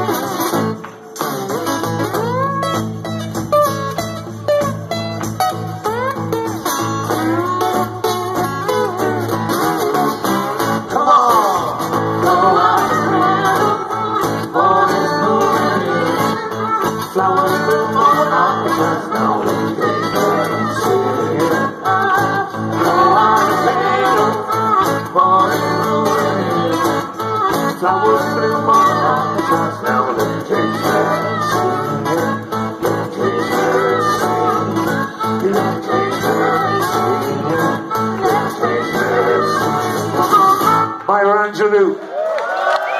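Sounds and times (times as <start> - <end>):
acoustic guitar: 0.0 - 41.6
voices singing together: 10.9 - 40.9.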